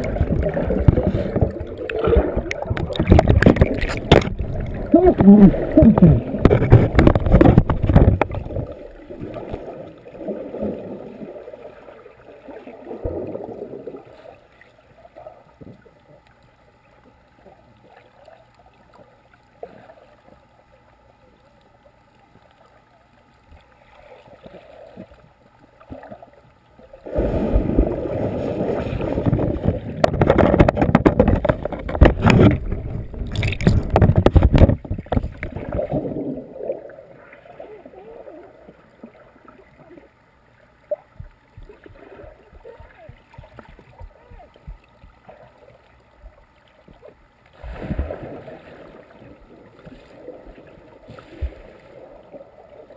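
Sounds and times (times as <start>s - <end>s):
muffled underwater swimmers splashing: 0.0s - 14.5s, 27.0s - 40.1s, 40.8s - 52.9s.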